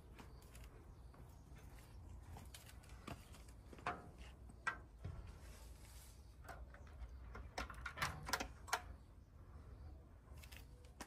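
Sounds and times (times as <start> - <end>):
footsteps on wood and dry leaves: 0.0 - 6.2.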